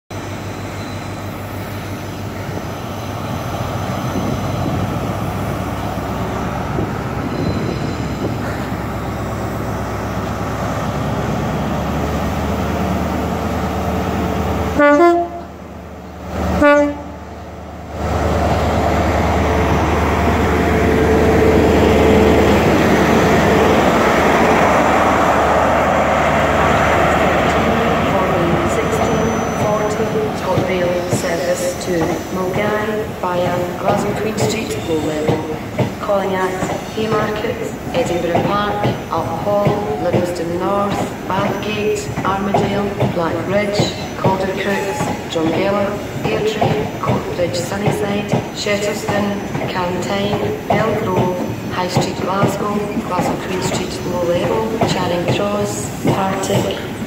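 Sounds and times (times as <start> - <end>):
diesel train engine running: 0.1 - 57.0
train horn blasts: 14.7 - 15.5, 16.6 - 17.2.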